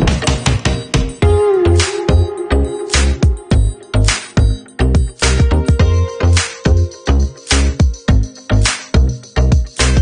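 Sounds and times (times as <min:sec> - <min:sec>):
upbeat instrumental music: 0:00.0 - 0:10.0.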